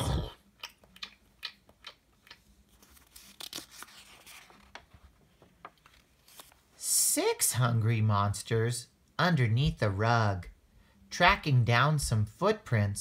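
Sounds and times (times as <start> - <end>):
paper page rustling: 2.6 - 6.7.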